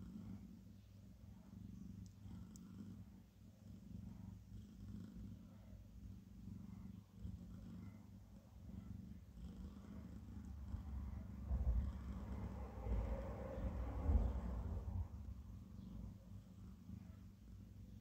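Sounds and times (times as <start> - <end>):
cat purring: 0.0 - 18.0
louder low rumble: 10.4 - 17.1.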